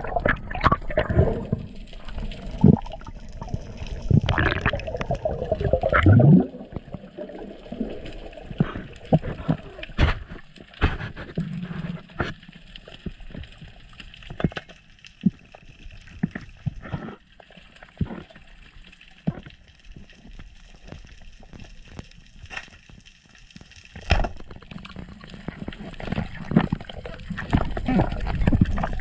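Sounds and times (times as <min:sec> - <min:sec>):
muffled underwater water movement: 0:00.0 - 0:29.0.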